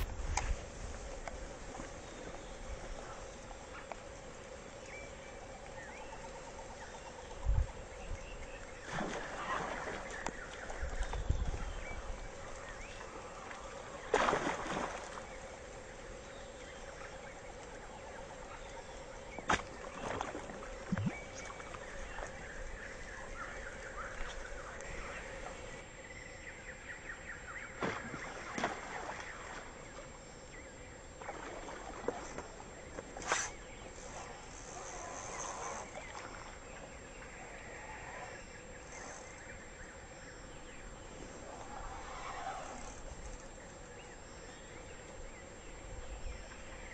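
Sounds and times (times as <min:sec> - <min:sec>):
steady low hiss: 0:00.0 - 0:46.9
splash on pond surface: 0:08.8 - 0:10.2, 0:14.0 - 0:15.4, 0:27.8 - 0:29.7
faint animal calls: 0:34.0 - 0:36.5, 0:37.3 - 0:39.5.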